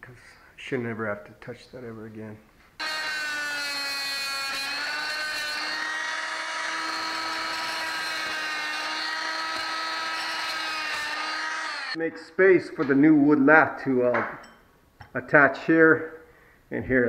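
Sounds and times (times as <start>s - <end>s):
oscillating multi-tool buzzing: 2.8s - 12.0s.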